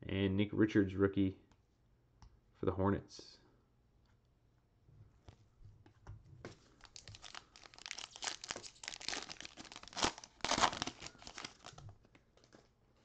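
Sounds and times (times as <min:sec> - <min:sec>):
foil wrapper tearing and crinkling: 0:06.8 - 0:11.8.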